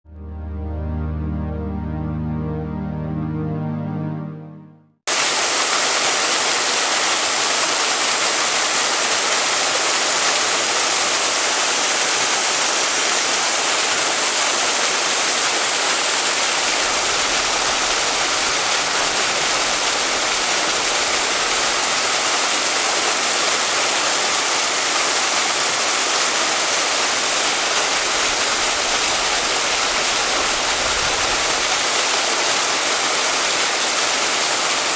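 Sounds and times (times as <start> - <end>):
soft music tune: 0.1 - 5.0
waterfall splashing onto rocks: 5.1 - 34.9.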